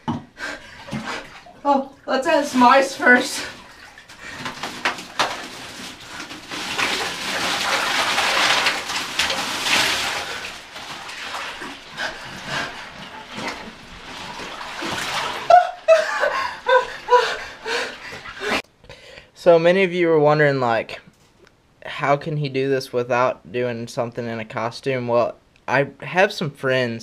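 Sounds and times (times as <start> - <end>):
ice cubes pouring into water: 2.6 - 15.6.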